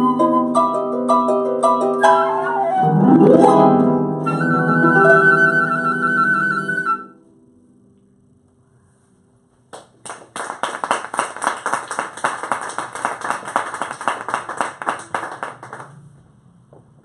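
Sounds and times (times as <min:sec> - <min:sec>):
audience applauding: 0:09.7 - 0:16.1.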